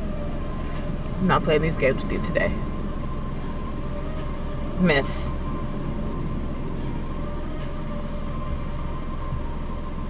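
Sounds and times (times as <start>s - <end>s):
car engine idling: 0.0s - 10.0s
faint steady hum: 0.0s - 10.0s.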